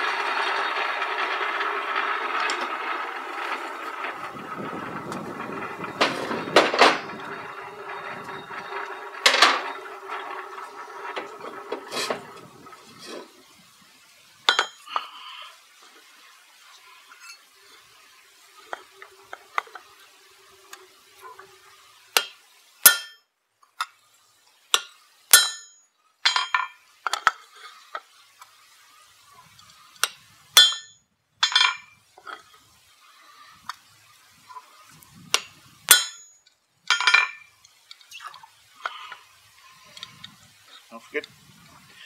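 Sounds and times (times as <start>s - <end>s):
hammer striking hot steel: 14.5s - 14.8s, 22.2s - 23.2s, 24.7s - 26.5s, 30.6s - 31.8s, 35.4s - 37.1s.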